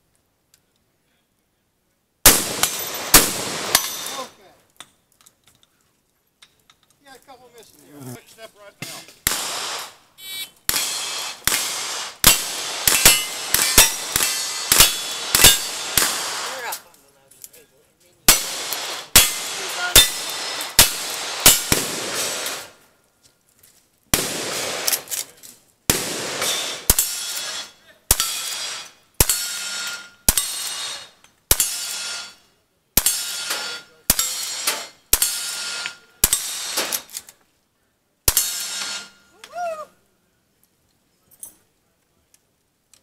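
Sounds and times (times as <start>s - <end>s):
rifle shots: 2.2s - 4.4s, 9.2s - 10.0s, 10.7s - 16.8s, 18.3s - 22.8s, 24.1s - 25.3s, 25.9s - 32.3s
steel target ringing: 10.7s - 16.2s, 18.3s - 21.8s, 38.3s - 39.4s.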